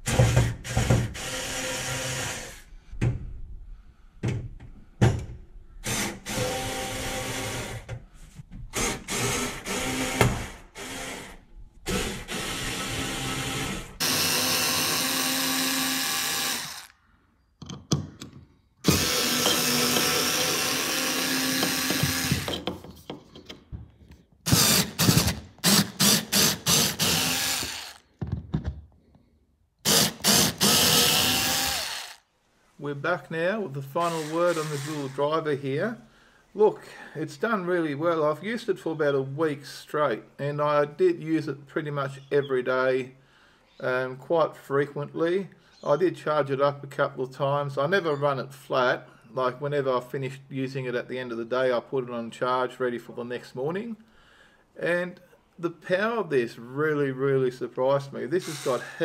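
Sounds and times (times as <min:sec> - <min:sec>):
cordless screwdriver running: 0:14.0 - 0:16.9, 0:18.9 - 0:22.6, 0:24.5 - 0:28.0, 0:29.9 - 0:32.2, 0:34.1 - 0:35.2, 0:58.4 - 0:59.0.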